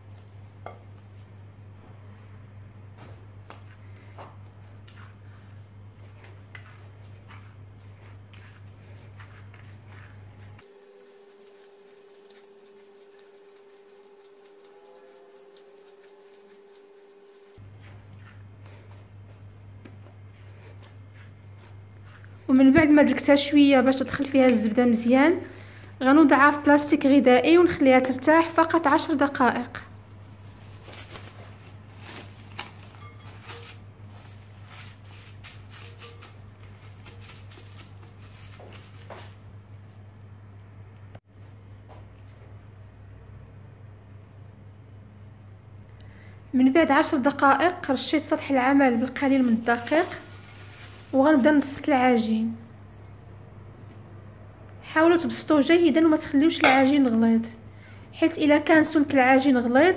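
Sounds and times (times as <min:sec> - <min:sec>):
faint hum: 0:00.0 - 0:59.9
hands kneading sticky dough: 0:03.4 - 0:24.8, 0:30.3 - 0:39.6, 0:48.1 - 0:52.2
plastic cling film crinkling: 0:06.0 - 0:18.0, 0:30.2 - 0:39.6, 0:48.8 - 0:52.3.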